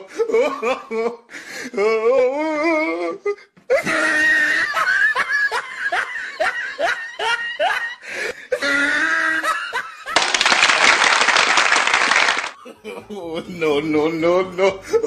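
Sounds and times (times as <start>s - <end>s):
person laughing loudly: 3.7s - 10.5s.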